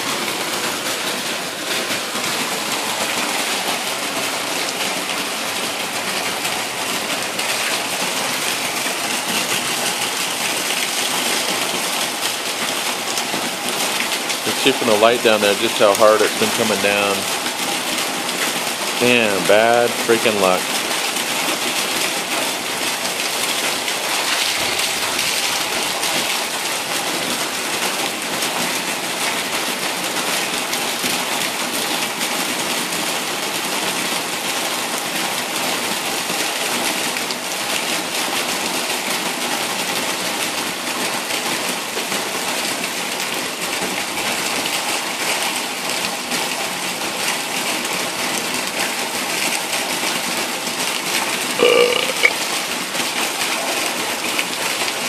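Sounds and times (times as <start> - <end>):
runoff pouring off roof: 0.0 - 55.0
heavy rain hissing: 13.8 - 26.9.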